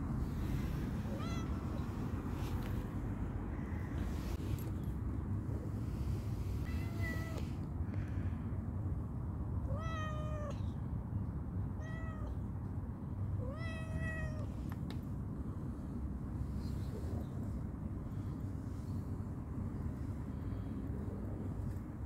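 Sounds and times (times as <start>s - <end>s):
steady low rumble: 0.0s - 22.0s
cat meowing: 1.0s - 1.9s, 6.7s - 7.5s, 9.7s - 10.7s, 11.8s - 12.4s, 13.4s - 14.5s.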